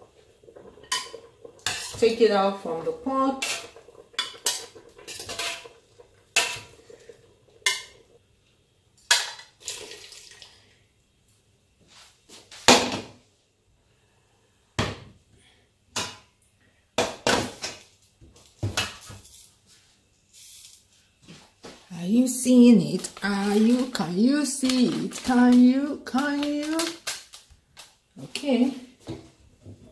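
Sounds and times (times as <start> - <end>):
steel pots clanking: 0.0 - 8.1.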